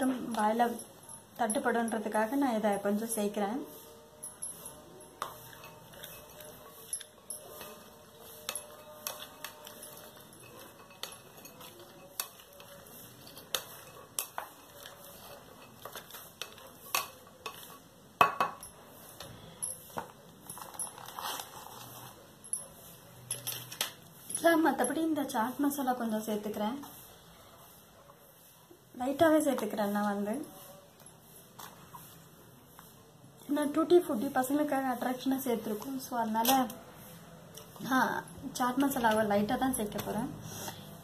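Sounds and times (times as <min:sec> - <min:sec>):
spatula tapping glass bowl: 0:04.4 - 0:12.8, 0:13.4 - 0:18.8.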